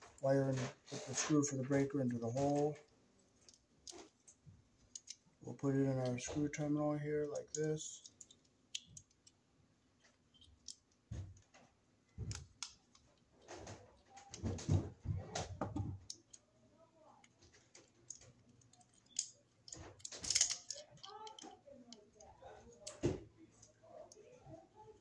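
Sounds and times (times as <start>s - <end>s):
hands handling wire clicks and taps: 2.3s - 5.4s, 6.0s - 16.5s, 17.2s - 24.3s.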